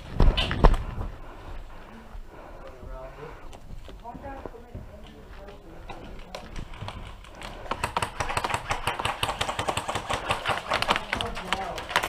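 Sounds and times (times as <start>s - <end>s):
rapid sharp clicks and taps: 6.8s - 12.0s.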